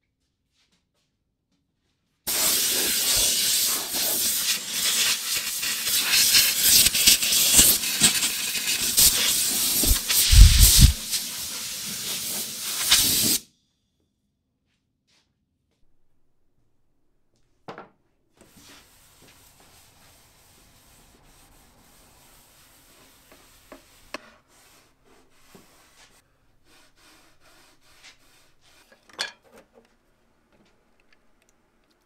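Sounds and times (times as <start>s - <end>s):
pressurised jet hissing: 2.3s - 13.4s
low thumps: 10.0s - 11.0s.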